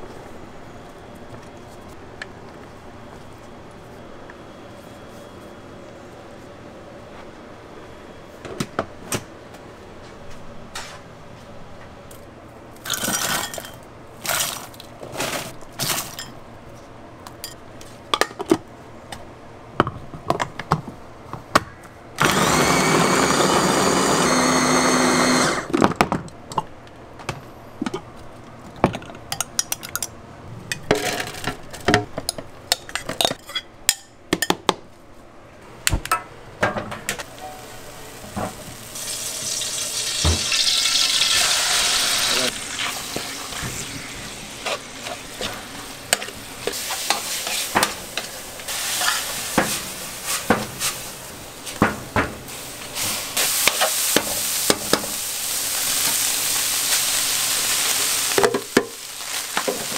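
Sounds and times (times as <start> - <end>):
utensils clinking on steel pans: 12.8 - 14.5, 44.6 - 51.0
electric chopper chopping food: 22.2 - 25.8.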